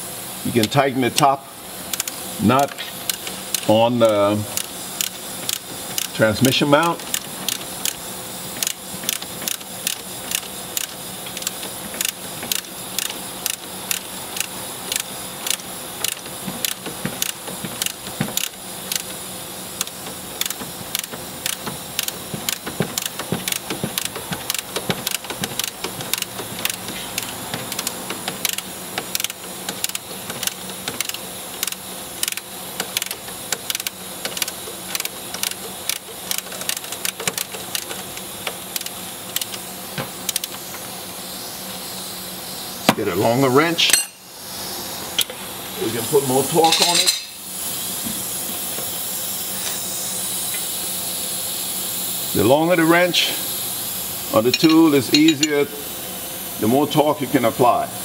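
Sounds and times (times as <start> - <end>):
steady low hum: 0.0 - 58.0
ratcheting wrench clicking: 0.6 - 40.8.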